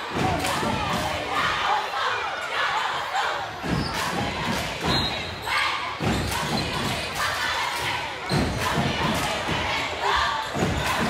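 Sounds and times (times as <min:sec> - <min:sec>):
crowd talking and shouting: 0:00.0 - 0:11.0.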